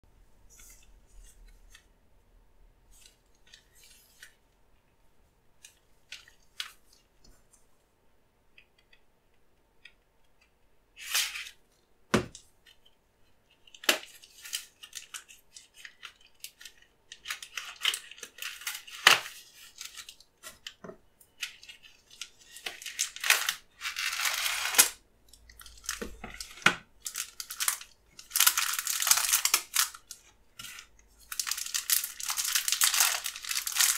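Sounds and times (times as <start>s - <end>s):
plastic wrapper crinkling: 13.6s - 20.8s, 21.4s - 33.9s.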